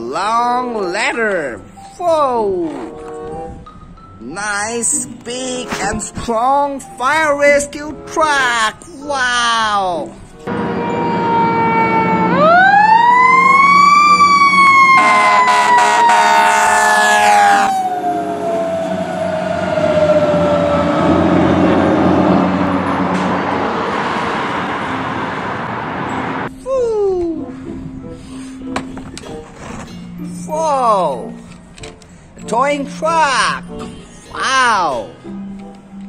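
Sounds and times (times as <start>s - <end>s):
truck and road noise: 0.0s - 26.6s, 27.5s - 36.0s
fire engine siren winding: 10.5s - 23.3s
horn blaring: 10.5s - 26.4s.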